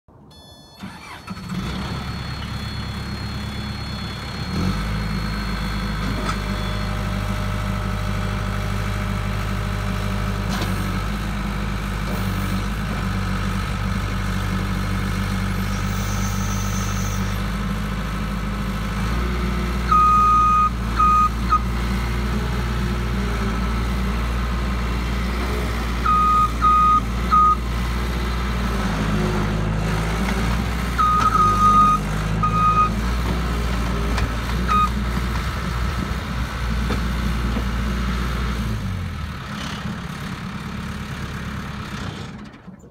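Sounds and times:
diesel loader engine running: 0.1s - 42.9s
electronic backup alarm beeping: 0.3s - 1.5s, 19.9s - 21.7s, 26.0s - 27.6s, 31.0s - 32.9s, 34.7s - 34.9s.

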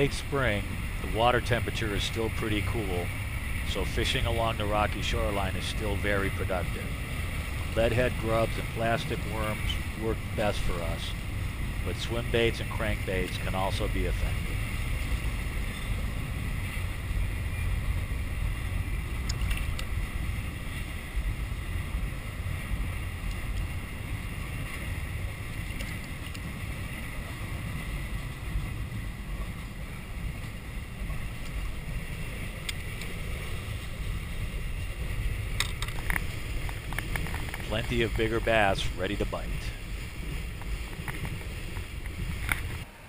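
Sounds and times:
wind buffeting microphone: 0.0s - 42.9s
faint clicks and knocks: 35.6s - 37.7s, 40.6s - 42.8s.

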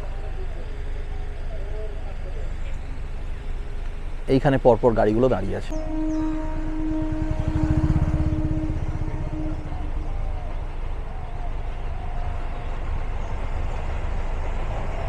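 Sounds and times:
train rumbling past: 5.4s - 15.0s
steady pitched tone: 5.7s - 10.5s.

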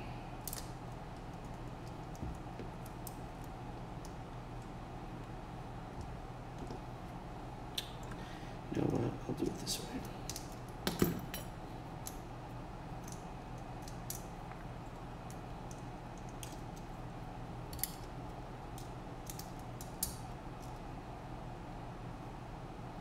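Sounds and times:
steady low hum: 0.0s - 23.0s
small parts clicking: 0.4s - 4.7s, 13.0s - 14.3s, 15.3s - 16.9s, 17.7s - 20.8s.

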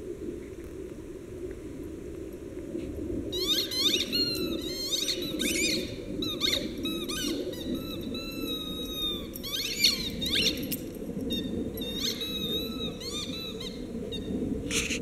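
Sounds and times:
squeaky toy squeaking: 3.4s - 10.6s
dog chewing toy: 6.2s - 13.8s.

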